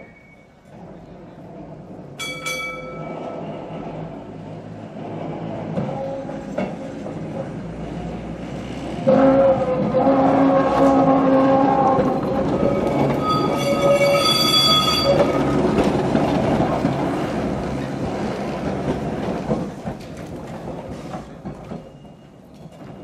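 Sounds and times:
wheels squealing on track: 10.7s - 15.9s.

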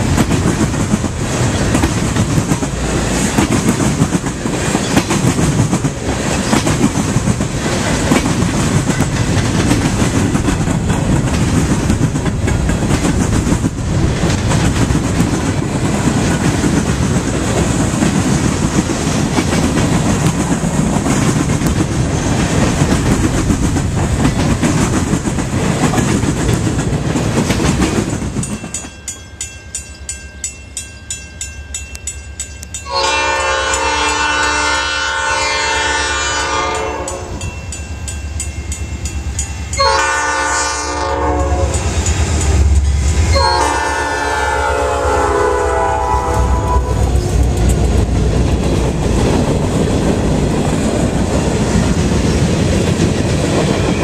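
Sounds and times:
wheels clicking over rail joints: 0.0s - 29.0s
freight train rumbling past: 0.0s - 54.0s.

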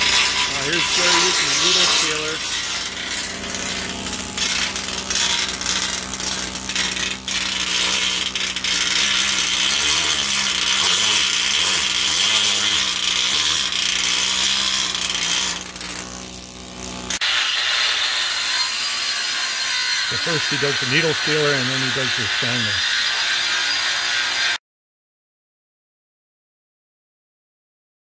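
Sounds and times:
needle scaler hammering metal: 0.0s - 19.1s, 19.9s - 23.1s.

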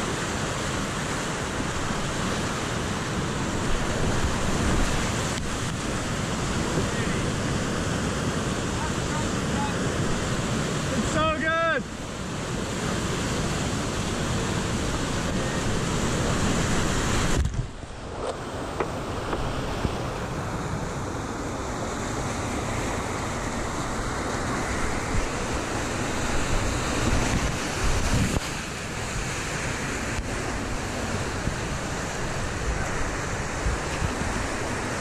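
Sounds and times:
whitewater rapids rushing: 0.0s - 35.0s
wind buffeting microphone: 24.7s - 35.0s.

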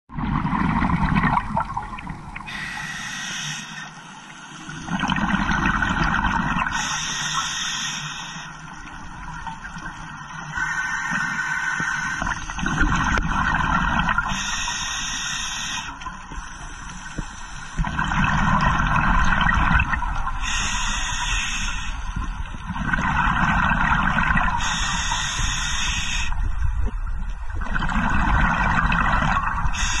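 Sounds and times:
regulator inhalation hiss: 2.5s - 4.8s, 6.7s - 8.8s, 10.5s - 12.5s, 14.2s - 17.8s, 20.4s - 22.2s, 24.6s - 26.4s, 29.7s - 30.0s.

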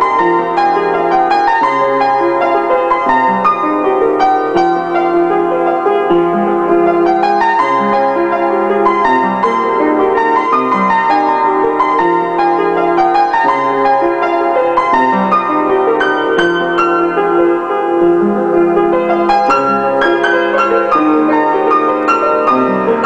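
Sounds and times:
solo piano: 0.0s - 23.0s.

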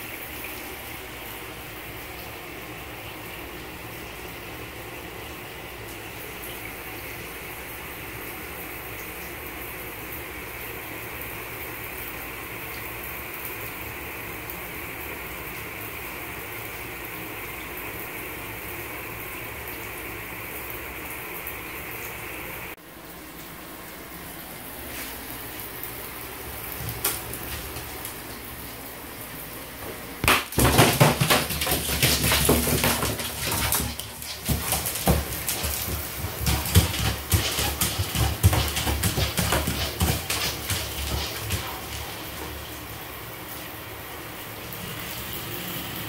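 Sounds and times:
claws scratching on bathtub: 30.5s - 42.2s.

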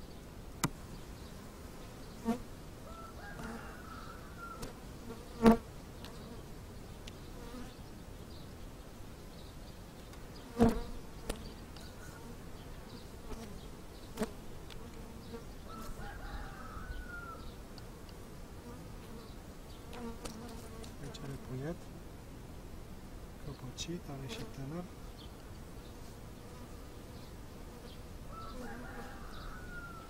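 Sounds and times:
honeybees buzzing: 0.0s - 21.9s, 23.5s - 30.0s.

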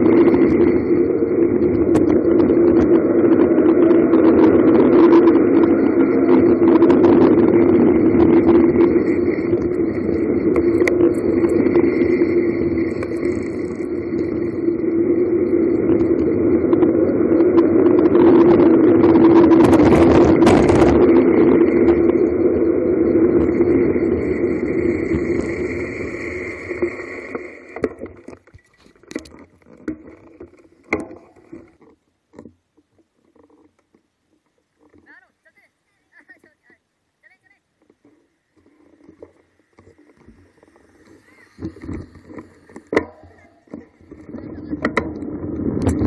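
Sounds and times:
wind rushing over microphone: 0.0s - 27.8s, 40.2s - 46.0s
steady hum: 0.0s - 46.0s.

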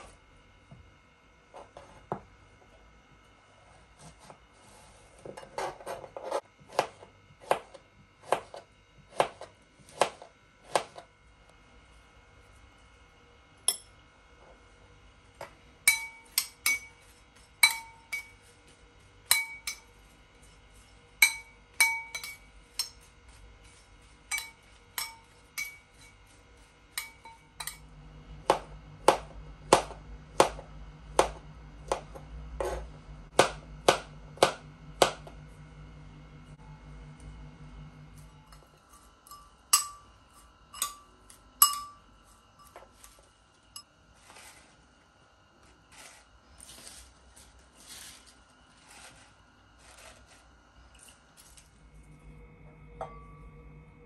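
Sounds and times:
low hum: 11.1s - 54.0s
utensil clinking dishes: 15.9s - 18.4s, 19.3s - 20.0s, 21.2s - 23.1s, 24.3s - 26.2s, 40.7s - 43.1s.

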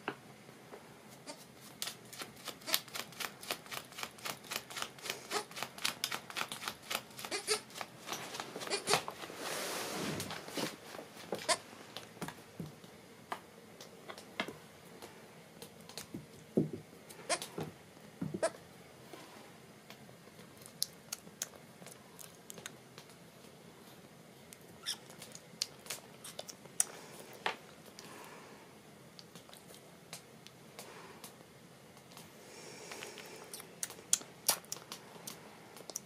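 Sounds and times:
knocks on wooden floor: 16.6s - 16.8s, 17.6s - 18.4s.

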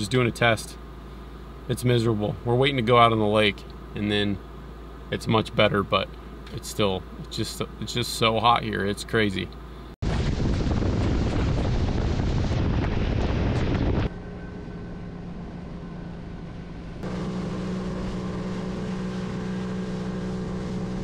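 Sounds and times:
water spray and wind rushing: 10.0s - 14.1s
outboard motor droning: 11.2s - 21.0s.

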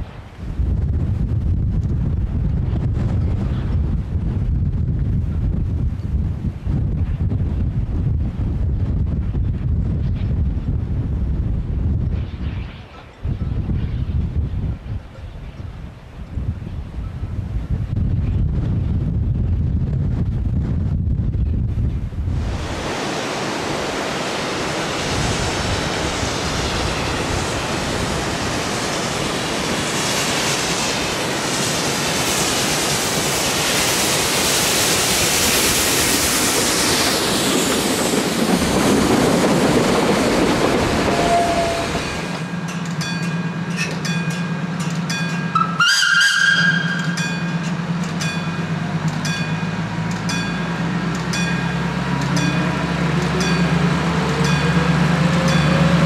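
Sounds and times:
diesel locomotive humming: 12.8s - 56.0s
steam locomotive hissing: 22.3s - 56.0s
locomotive whistle: 40.9s - 42.4s, 45.5s - 47.3s.

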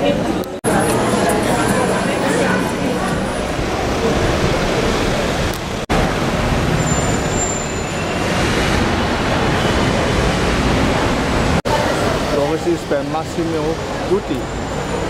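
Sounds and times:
busy city street traffic: 0.0s - 15.0s.

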